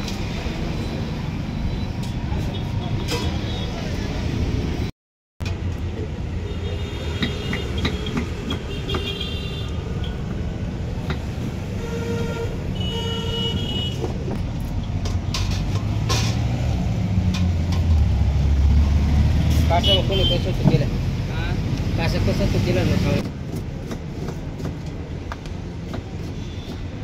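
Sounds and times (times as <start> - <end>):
road traffic rumbling: 0.0 - 27.0
vehicle horns honking: 11.7 - 14.1, 19.7 - 20.6.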